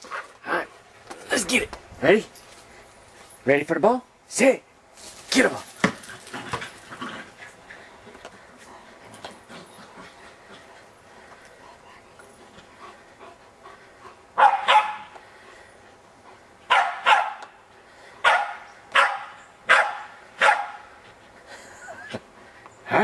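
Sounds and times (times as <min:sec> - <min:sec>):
dogs barking sharply: 0:14.4 - 0:15.1, 0:16.7 - 0:17.6, 0:18.2 - 0:20.9.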